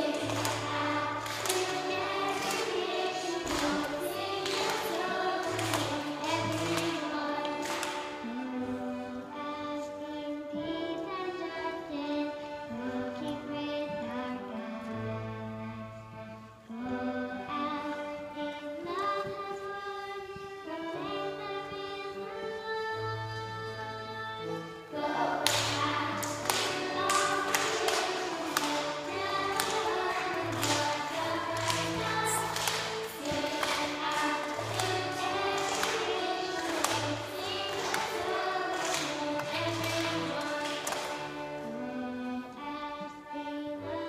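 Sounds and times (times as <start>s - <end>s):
accordion: 0.0s - 44.0s.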